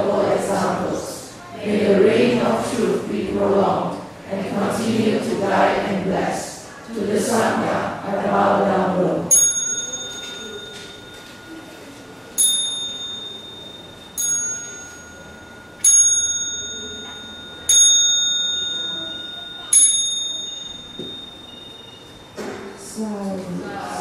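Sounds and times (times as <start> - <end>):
high-pitched bell ringing: 9.3 - 22.4.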